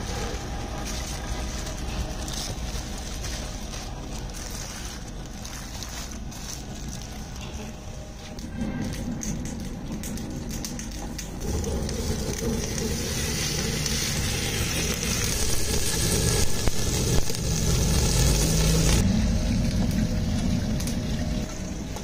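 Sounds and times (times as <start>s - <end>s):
stove flame low rumble: 0.0s - 22.0s
meat sizzling in a pot: 11.4s - 21.9s.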